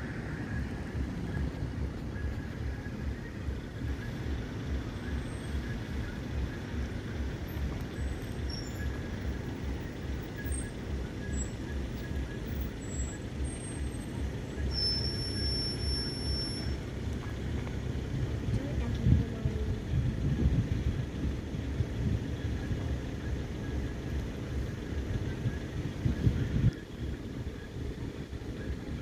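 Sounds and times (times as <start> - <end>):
diesel locomotive rhythmic throb: 0.0 - 29.0
wind buffeting microphone: 17.2 - 29.0.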